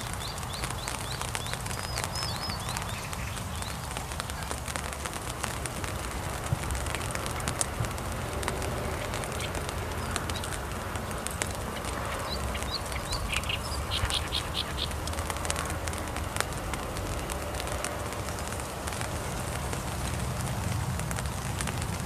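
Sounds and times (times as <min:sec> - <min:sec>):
small bird chirping: 0:00.0 - 0:04.6, 0:11.8 - 0:15.6
rain falling: 0:00.0 - 0:22.0.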